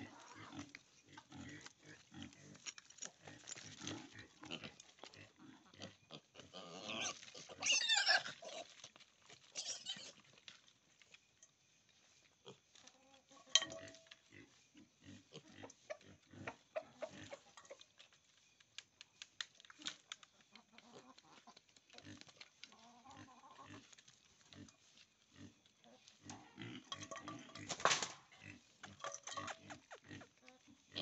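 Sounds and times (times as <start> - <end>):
piglets grunting and snuffling: 0.0 - 11.2, 12.0 - 18.0, 19.7 - 31.0
piglet squealing: 6.6 - 8.7, 9.6 - 10.2.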